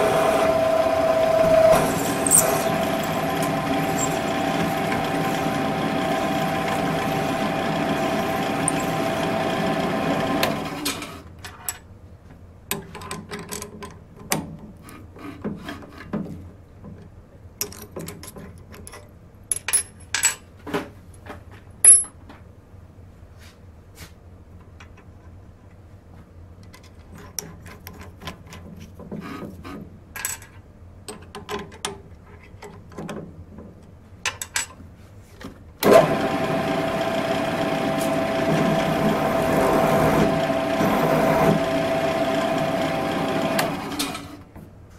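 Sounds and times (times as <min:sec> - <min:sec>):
drill press motor running: 0:00.0 - 0:10.9, 0:35.8 - 0:44.3
metal parts clinking on steel table: 0:02.2 - 0:03.2, 0:17.6 - 0:20.4, 0:21.8 - 0:22.2.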